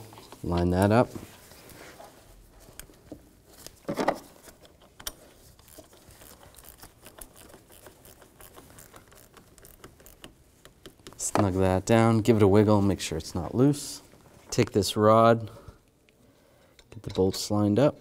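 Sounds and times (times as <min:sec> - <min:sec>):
rubbing of cable and gloves: 0:00.0 - 0:11.6.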